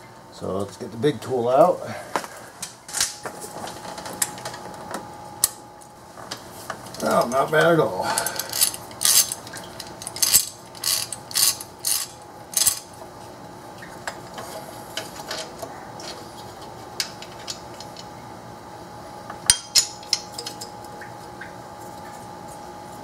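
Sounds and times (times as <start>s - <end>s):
hand ratchet clicking: 8.3s - 9.4s, 10.0s - 12.8s.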